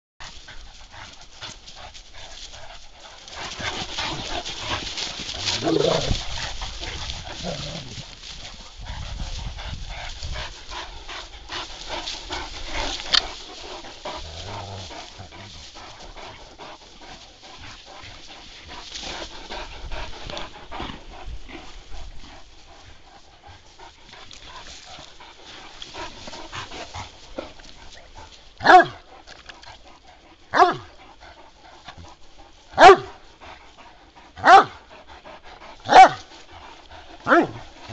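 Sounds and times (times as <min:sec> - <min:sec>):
dogs scuffling: 0:00.2 - 0:20.4
dogs vocalizing while playing: 0:00.2 - 0:37.9.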